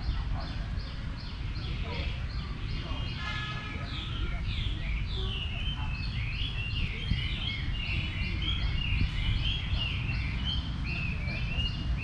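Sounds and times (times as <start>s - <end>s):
songbirds whistling: 0.0s - 12.0s.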